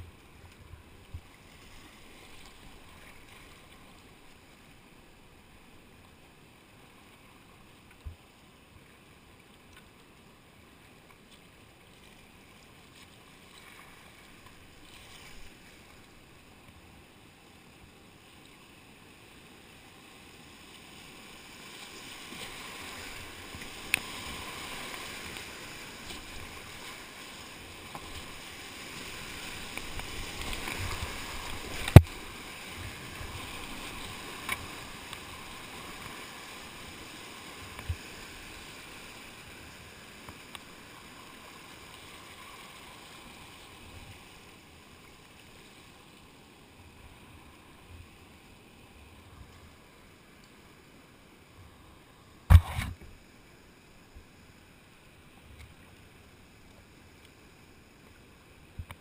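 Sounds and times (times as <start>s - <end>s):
splashing paddle strokes: 21.4s - 41.2s.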